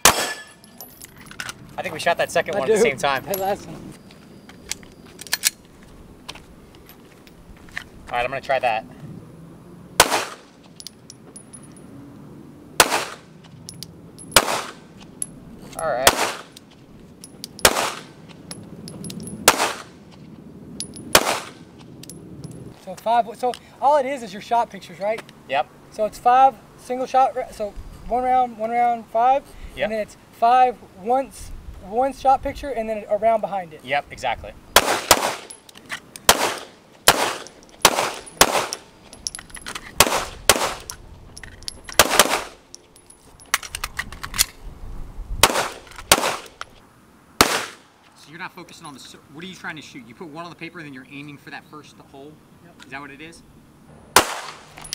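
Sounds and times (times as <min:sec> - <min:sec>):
pistol shots with echo: 0:00.0 - 0:00.6, 0:10.0 - 0:10.5, 0:12.8 - 0:13.3, 0:14.4 - 0:14.8, 0:16.0 - 0:16.5, 0:17.6 - 0:18.2, 0:19.4 - 0:19.9, 0:21.1 - 0:21.6, 0:34.8 - 0:35.5, 0:36.3 - 0:38.8, 0:40.0 - 0:40.8, 0:42.0 - 0:42.6, 0:45.4 - 0:46.5, 0:47.4 - 0:47.8, 0:54.2 - 0:54.7.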